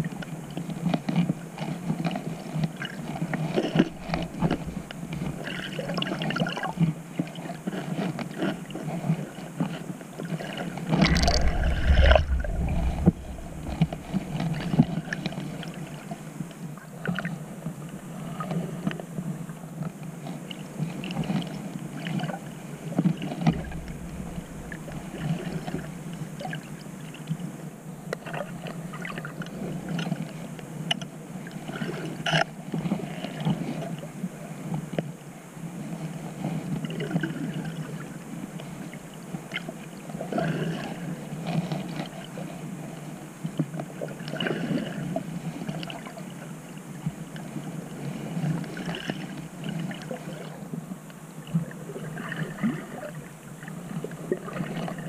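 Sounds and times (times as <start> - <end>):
underwater wash of seawater: 2.7 - 19.5, 20.8 - 34.4, 35.8 - 43.1, 43.9 - 55.0
small underwater clicks: 10.9 - 15.4.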